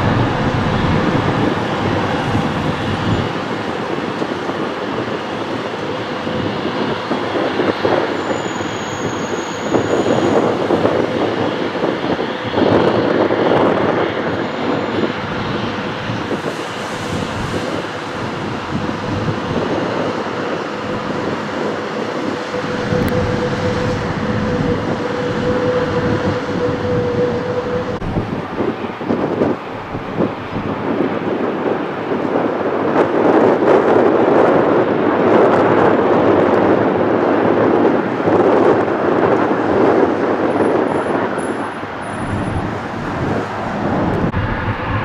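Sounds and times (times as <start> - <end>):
steady tone: 0.0 - 3.9, 18.2 - 28.6, 43.4 - 45.0
jet engines climbing: 0.0 - 45.0.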